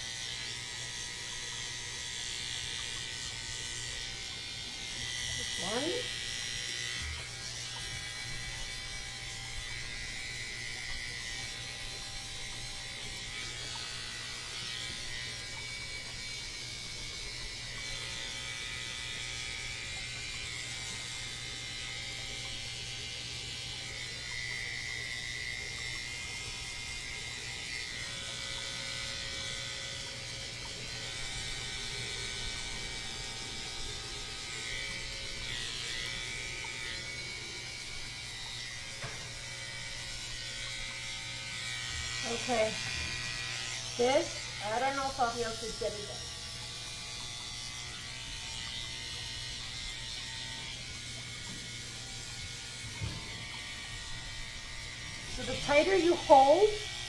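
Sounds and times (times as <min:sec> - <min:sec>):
electric clippers buzzing: 0:00.0 - 0:57.0.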